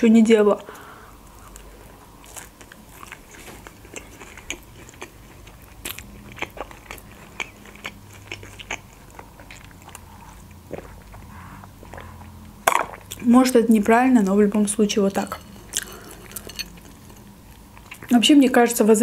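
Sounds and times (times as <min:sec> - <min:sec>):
crunchy chewing: 0:01.2 - 0:13.3, 0:15.3 - 0:18.1.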